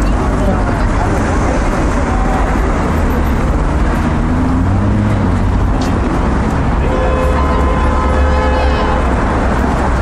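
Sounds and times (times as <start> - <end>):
road traffic: 0.0 - 10.0.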